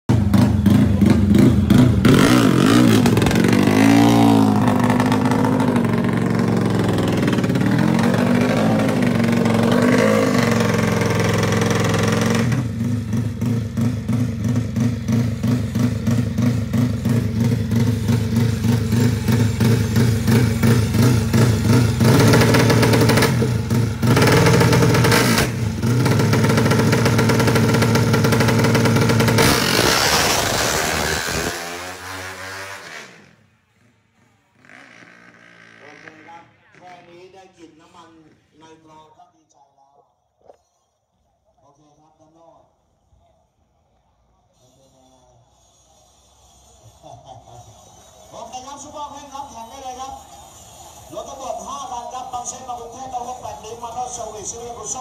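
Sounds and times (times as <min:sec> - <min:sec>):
motorcycle engine revving: 0:00.1 - 0:37.5.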